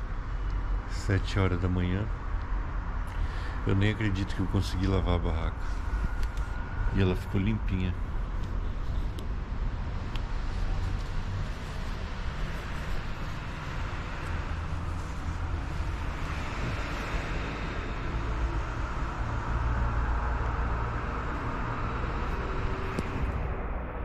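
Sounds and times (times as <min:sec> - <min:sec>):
background rumble and hiss: 0:00.0 - 0:23.8.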